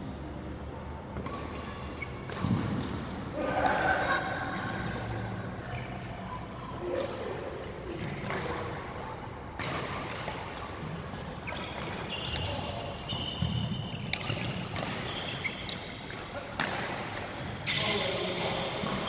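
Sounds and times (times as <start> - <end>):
court shoes squeaking: 0.2 - 19.0
racket striking shuttlecock: 1.2 - 3.9, 9.5 - 10.7.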